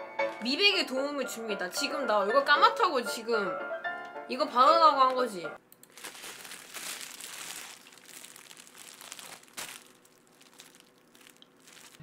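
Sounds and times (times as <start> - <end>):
bubble wrap crinkling: 5.8 - 12.0.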